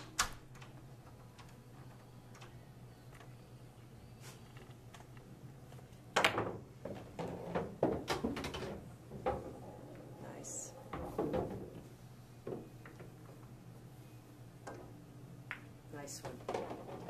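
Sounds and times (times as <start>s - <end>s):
billiard balls clicking: 4.4s - 13.6s, 14.6s - 17.0s
pool cue striking ball: 6.2s - 10.2s.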